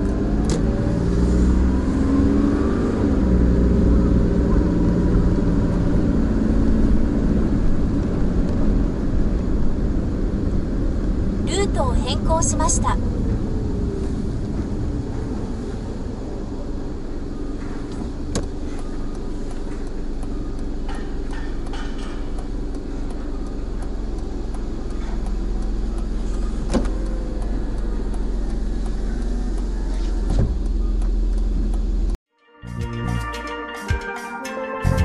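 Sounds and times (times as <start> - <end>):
car engine idling: 3.2 - 32.2.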